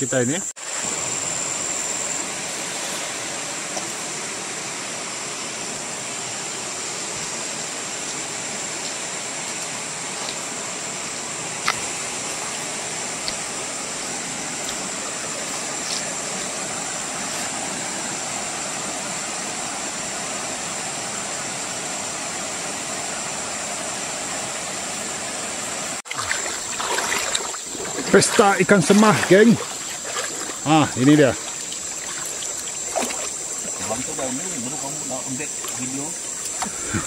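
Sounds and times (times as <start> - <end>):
river water flowing over rocks: 0.6 - 37.0.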